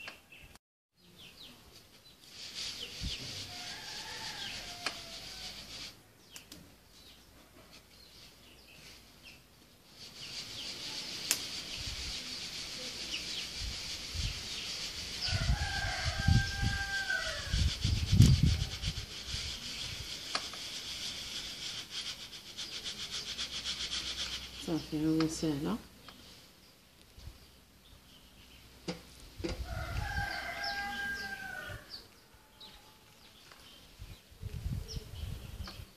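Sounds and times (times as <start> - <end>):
grains hissing in a sieve: 1.8 - 6.1, 7.8 - 26.6, 29.6 - 32.0
rooster crowing: 3.5 - 5.7, 15.2 - 17.7, 29.6 - 33.1.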